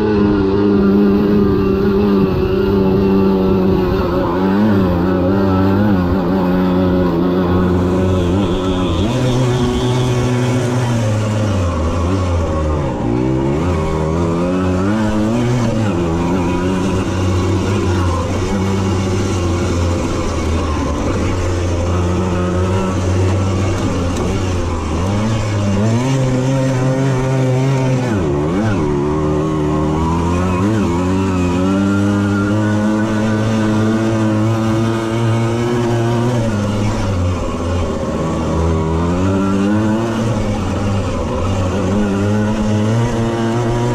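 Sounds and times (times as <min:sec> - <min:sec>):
moped engine revving: 0:00.0 - 0:43.9.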